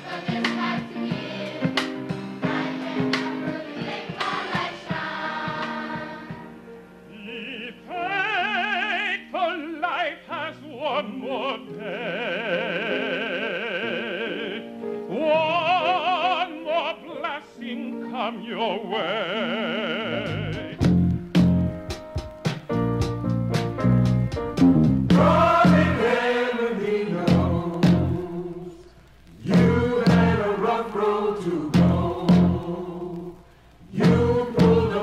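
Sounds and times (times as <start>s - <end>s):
choir singing: 0.0s - 6.6s, 25.1s - 35.0s.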